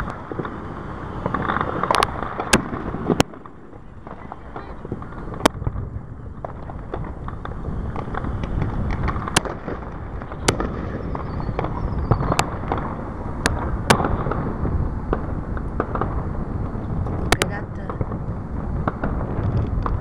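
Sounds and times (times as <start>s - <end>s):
fireworks pops and crackles: 0.0s - 20.0s
low rumble: 0.0s - 20.0s
faint falling whistle: 11.0s - 12.5s.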